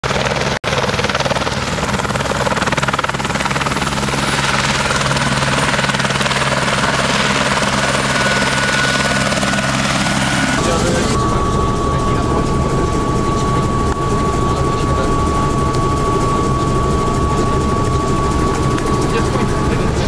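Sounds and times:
helicopter turbine and rotor running: 0.0 - 20.0
thin high whine: 7.1 - 20.0.

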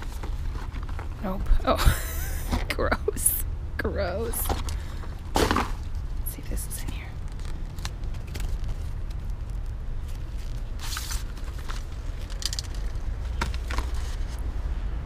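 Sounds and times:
cardboard clicks and scuffs: 4.5 - 5.9, 6.8 - 14.4.

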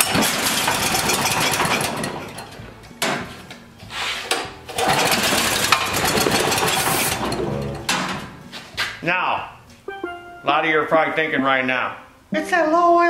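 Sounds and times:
generator engine running rough: 0.0 - 2.1.

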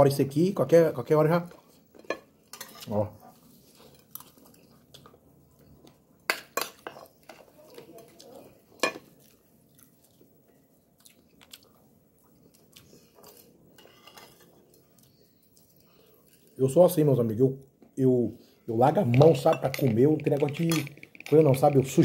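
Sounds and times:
quiet chewing: 3.2 - 6.2, 6.8 - 16.6.

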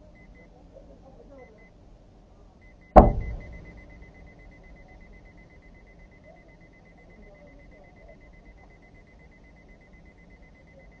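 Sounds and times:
vehicle collision crash: 3.0 - 3.8
high electronic beeps: 3.0 - 11.0.

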